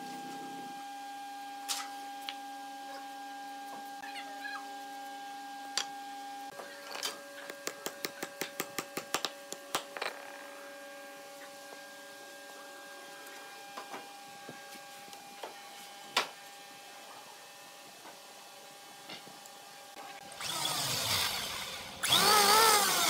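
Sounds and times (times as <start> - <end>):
machine hum: 0.0 - 7.4.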